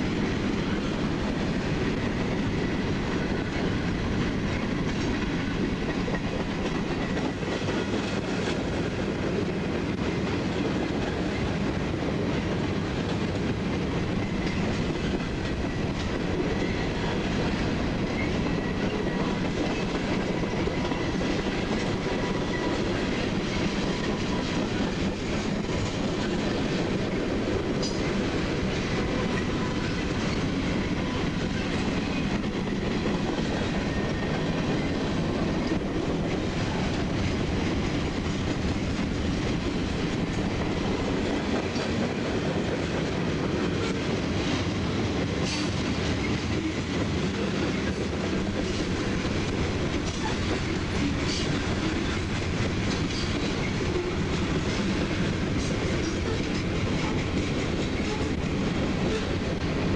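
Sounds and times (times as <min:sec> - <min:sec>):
steel wheels rolling on rail: 0:00.0 - 0:59.9
wheels clicking over rail joints: 0:45.2 - 0:59.8.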